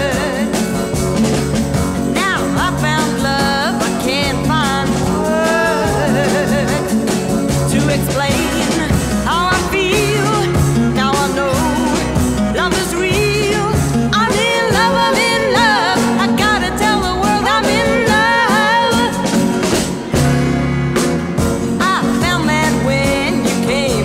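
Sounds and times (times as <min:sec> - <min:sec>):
woman singing with vibrato: 0:00.0 - 0:00.8, 0:02.1 - 0:19.6, 0:21.7 - 0:24.0
band with drums bass and guitar: 0:00.0 - 0:24.0.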